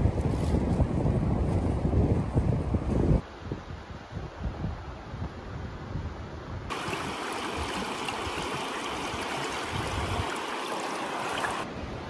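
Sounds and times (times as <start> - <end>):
wind buffeting microphone: 0.0 - 12.0
river water rushing: 6.7 - 11.7.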